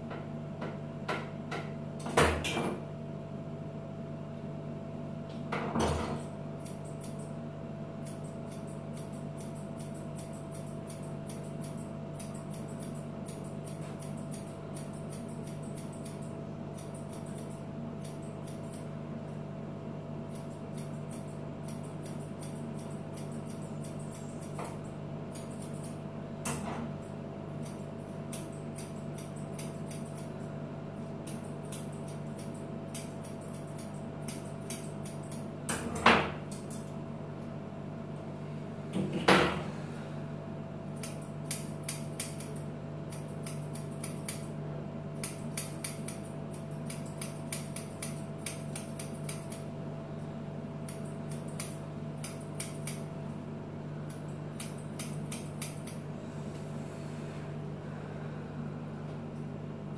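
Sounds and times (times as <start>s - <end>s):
steady low hum: 0.0s - 59.9s
grooming scissors snipping: 6.2s - 7.4s, 8.0s - 19.4s, 20.3s - 35.5s, 40.9s - 44.6s, 45.2s - 49.7s, 50.8s - 53.1s, 54.1s - 56.0s.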